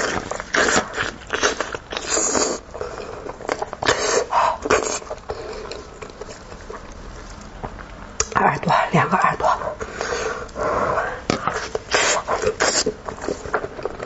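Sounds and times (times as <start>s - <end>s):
wet chewing and smacking: 0.0s - 8.4s.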